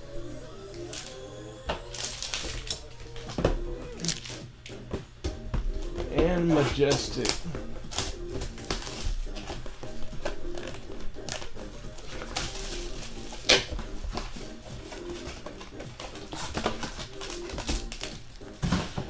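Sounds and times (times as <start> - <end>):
background music with held notes: 0.0 - 19.0
card pack crinkling: 1.8 - 3.3, 4.0 - 4.4, 14.8 - 18.4.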